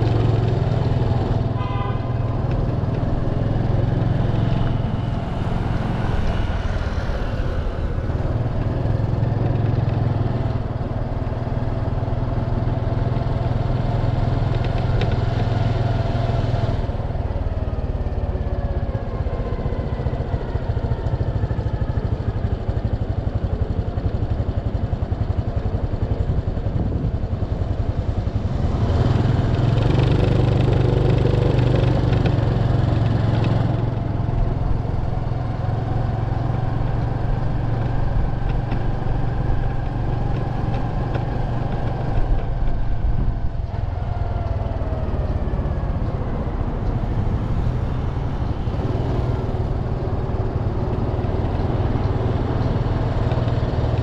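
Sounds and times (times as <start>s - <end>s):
motorcycle engine running: 0.0s - 54.0s
wind rush on microphone: 25.2s - 54.0s.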